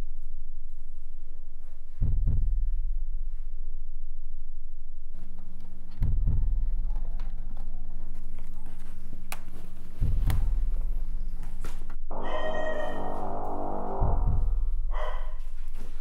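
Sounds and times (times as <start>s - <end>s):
deep heartbeat thud: 1.9s - 3.4s, 6.0s - 6.9s, 10.0s - 11.3s, 13.8s - 15.6s
low steady drone: 9.8s - 16.0s
dense sustained chord: 12.1s - 14.9s.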